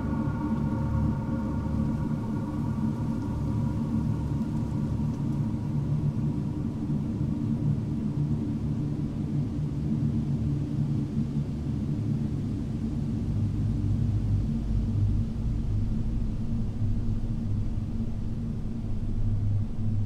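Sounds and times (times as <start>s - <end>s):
low rumbling ambient drone: 0.0s - 9.5s.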